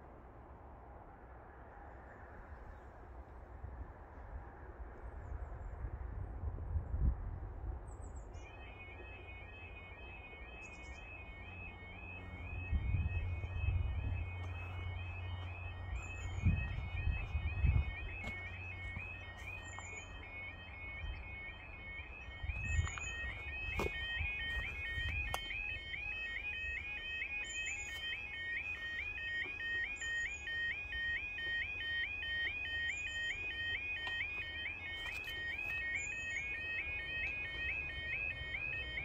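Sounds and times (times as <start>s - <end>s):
level crossing two-tone warning alarm: 8.3s - 39.0s.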